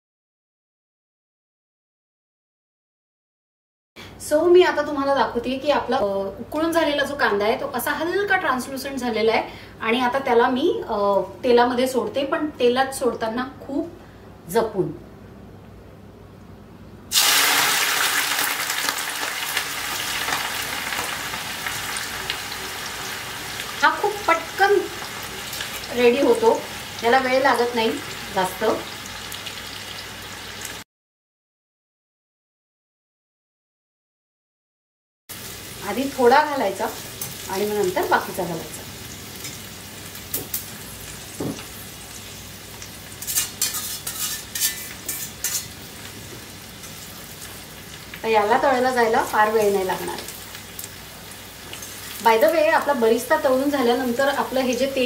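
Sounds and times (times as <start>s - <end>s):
onions sizzling in hot oil: 17.1s - 30.8s, 35.3s - 55.0s.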